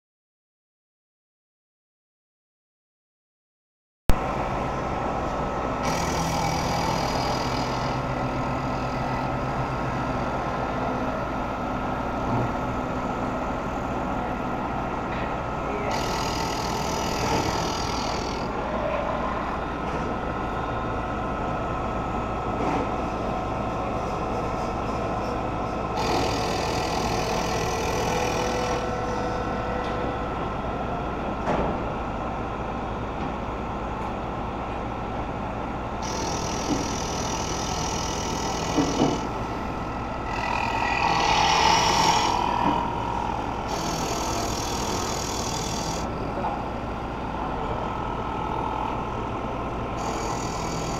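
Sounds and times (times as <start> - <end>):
milling machine spindle whine: 4.2 - 50.9
hissing cutting noise: 40.2 - 46.1.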